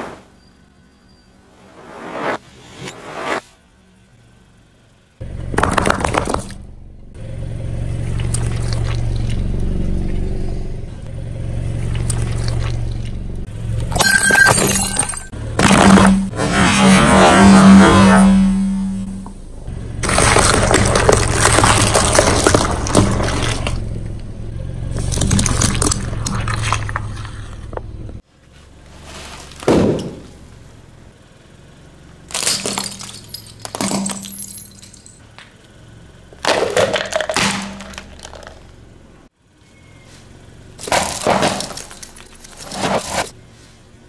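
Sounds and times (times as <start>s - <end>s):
eggshells cracking under tyre: 5.5s - 6.6s, 8.0s - 9.7s, 11.8s - 13.2s, 20.0s - 24.0s, 24.9s - 27.9s, 32.3s - 34.4s, 36.3s - 38.8s, 40.8s - 43.3s
plastic cracking under tyre: 20.0s - 23.8s, 40.8s - 43.3s.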